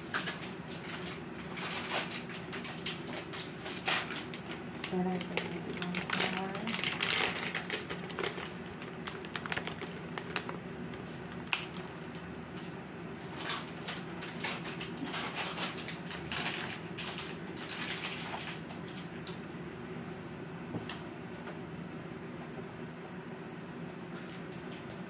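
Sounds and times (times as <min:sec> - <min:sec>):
steady low hum: 0:00.0 - 0:25.0
plastic bag crinkling: 0:00.1 - 0:12.2, 0:13.3 - 0:19.0.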